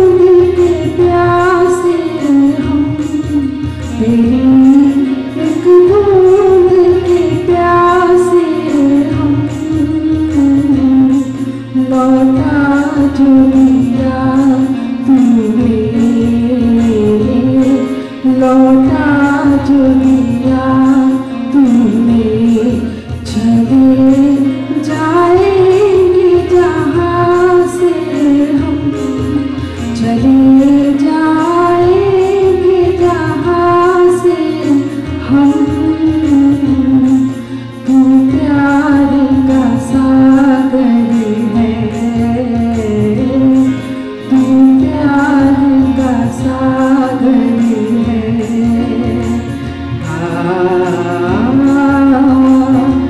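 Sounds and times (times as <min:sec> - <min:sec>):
woman singing a prayer: 0:00.0 - 0:03.4, 0:37.9 - 0:53.0
musical backing: 0:00.0 - 0:53.0.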